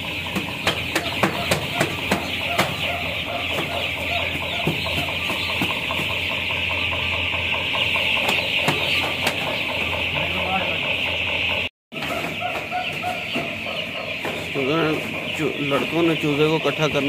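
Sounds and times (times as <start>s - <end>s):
chicks peeping: 0.0s - 17.0s.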